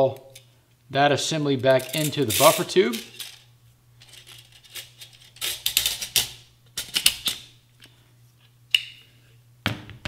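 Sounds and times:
metallic clicks and scrapes: 0:01.7 - 0:07.4.

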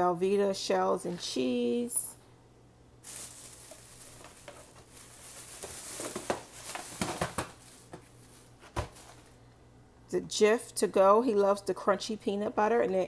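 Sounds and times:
packaging rustling: 0:03.0 - 0:09.4.

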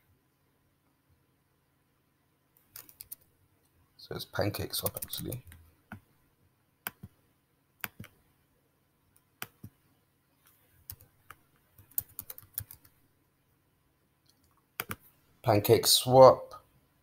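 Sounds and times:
computer keyboard typing: 0:02.7 - 0:03.3, 0:04.8 - 0:06.0, 0:06.8 - 0:07.1, 0:07.8 - 0:08.2, 0:09.4 - 0:09.7, 0:10.8 - 0:13.0, 0:14.8 - 0:15.0.

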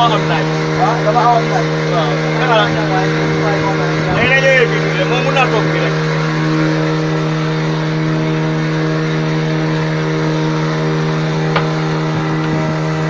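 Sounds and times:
boat engine running: 0:00.0 - 0:13.0
wind and water rushing: 0:00.0 - 0:13.0.

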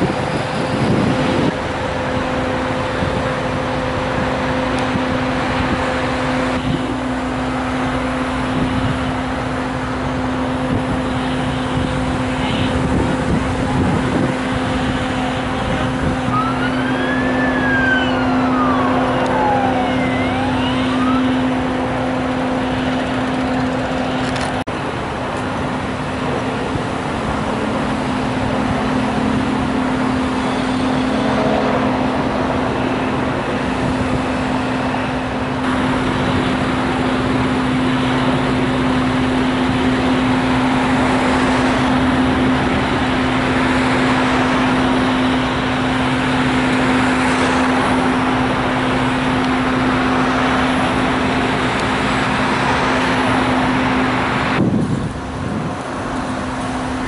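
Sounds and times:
faint siren wailing: 0:00.0 - 0:24.5
idling engines humming: 0:00.0 - 0:57.0
traffic noise: 0:00.0 - 0:57.0.

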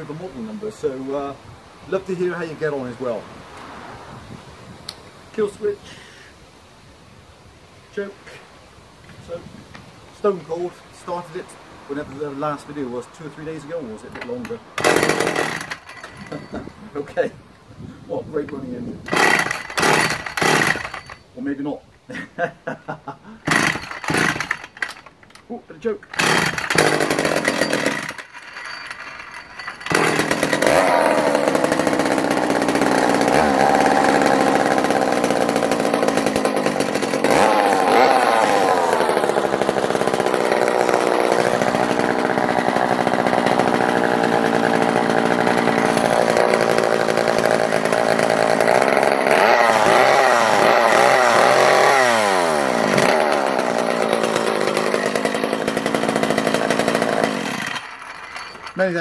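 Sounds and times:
chainsaw engine running: 0:14.2 - 0:16.6, 0:19.1 - 0:21.2, 0:23.4 - 0:25.1, 0:26.1 - 0:59.0.

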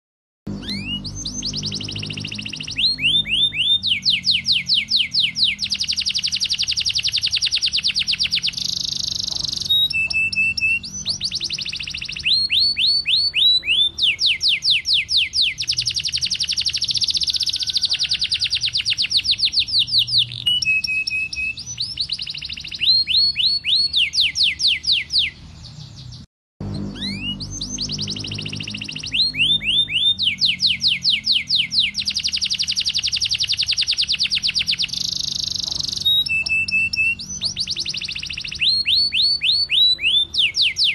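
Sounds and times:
canary singing trills: 0:00.5 - 0:40.9.

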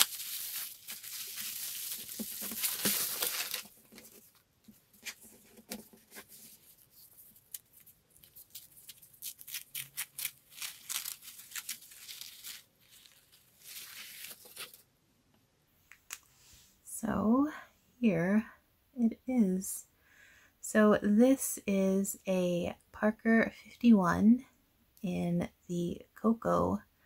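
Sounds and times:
paper crinkling and tearing: 0:00.0 - 0:04.4, 0:05.0 - 0:14.8.

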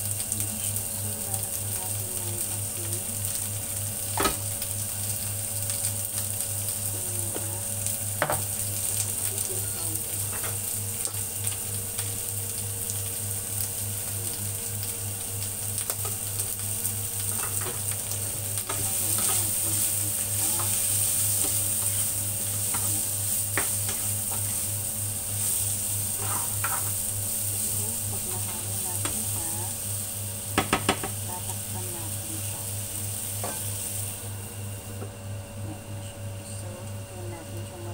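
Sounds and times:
steady low hum: 0:00.0 - 0:37.9
vegetables sizzling in a frying pan: 0:00.0 - 0:37.9
spatula stirring and tossing: 0:18.6 - 0:29.2
spatula knocking against pan: 0:30.6 - 0:31.2.

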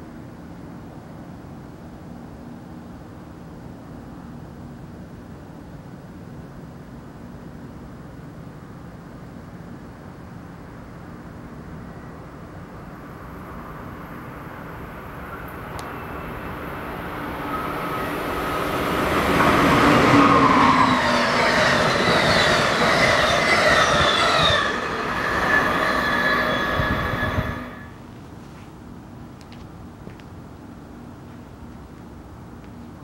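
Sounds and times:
electric train passing: 0:11.2 - 0:28.2
high ringing whine: 0:11.7 - 0:28.0.

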